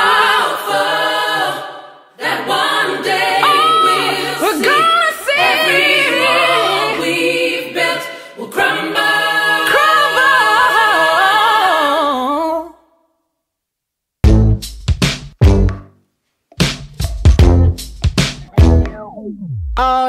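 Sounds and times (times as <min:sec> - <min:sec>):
a cappella vocal harmonies: 0:00.0 - 0:13.1.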